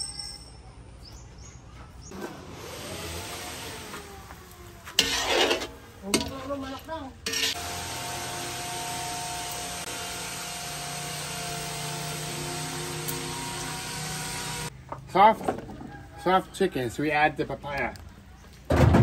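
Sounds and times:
metal spoon scraping a wok: 0:05.0 - 0:07.8.

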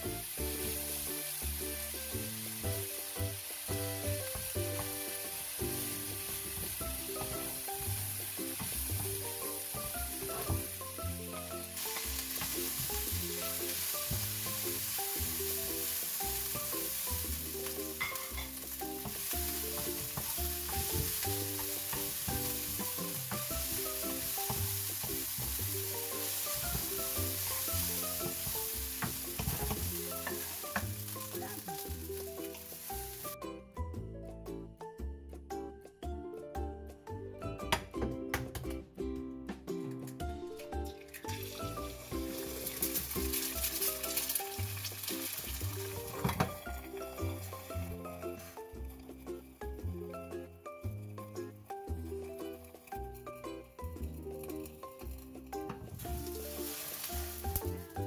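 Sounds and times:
rice sizzling in frying pan: 0:00.0 - 0:33.4, 0:40.8 - 0:50.0, 0:50.7 - 0:58.0
background music: 0:00.0 - 0:58.0
wooden spatula stirring: 0:04.1 - 0:33.4, 0:54.0 - 0:58.0.

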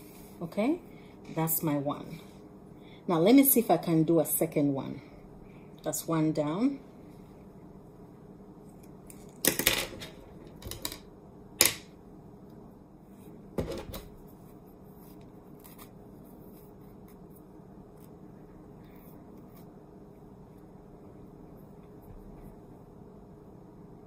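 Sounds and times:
low room hum: 0:00.0 - 0:24.0
scratchy rustles of hands in hair: 0:14.2 - 0:18.2.

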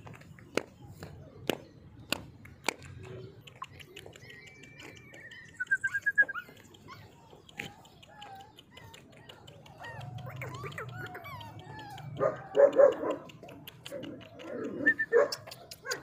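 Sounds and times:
high-pitched animal calls: 0:04.2 - 0:12.5.

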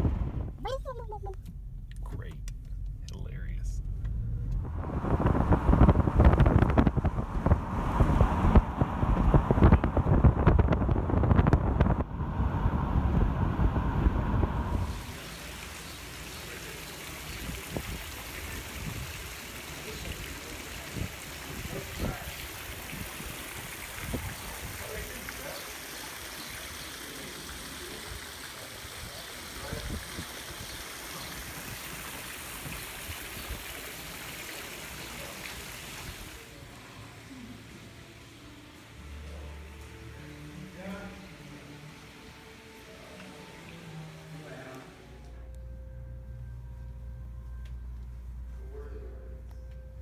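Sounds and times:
wind rumbling on microphone: 0:00.0 - 0:15.2, 0:17.4 - 0:19.3, 0:20.9 - 0:25.0
fountain water splashing: 0:14.7 - 0:39.4.

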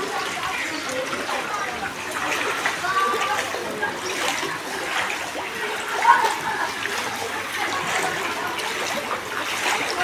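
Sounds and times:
floodwater sloshing while wading: 0:00.0 - 0:10.0.

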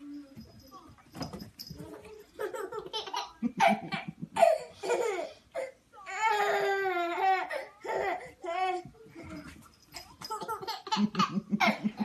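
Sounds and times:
baby laughing: 0:02.4 - 0:05.3, 0:10.3 - 0:12.0.

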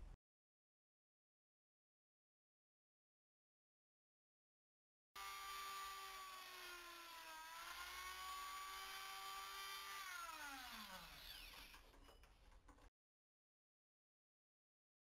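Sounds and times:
rotary tool spinning down: 0:05.2 - 0:12.2
rotary tool cutting metal: 0:05.2 - 0:12.3.

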